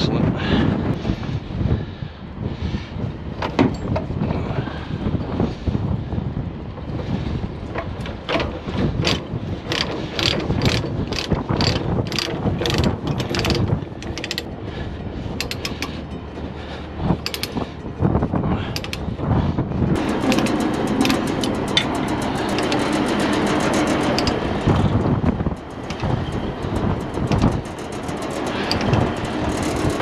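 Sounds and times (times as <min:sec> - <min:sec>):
ratchet binder clicking: 0:07.8 - 0:14.6, 0:15.4 - 0:16.2, 0:17.2 - 0:19.1, 0:20.0 - 0:30.0.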